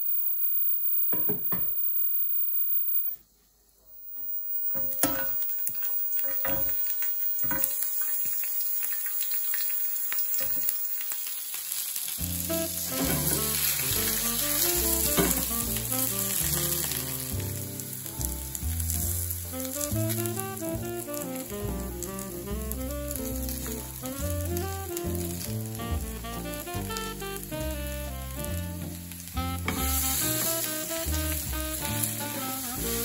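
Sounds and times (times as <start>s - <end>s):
vegetable slices sizzling in a pan: 4.3s - 33.0s
background music: 12.3s - 33.0s.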